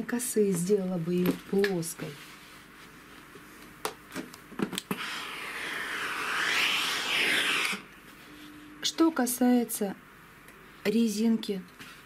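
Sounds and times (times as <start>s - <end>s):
steam iron hissing: 4.9s - 7.9s.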